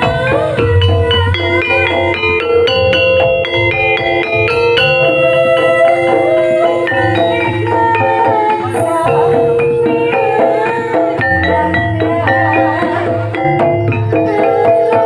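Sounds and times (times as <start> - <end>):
low drum beats: 0.0 - 15.0
metal mallet instruments melody: 0.0 - 15.0
wavering higher melodic line: 0.0 - 15.0.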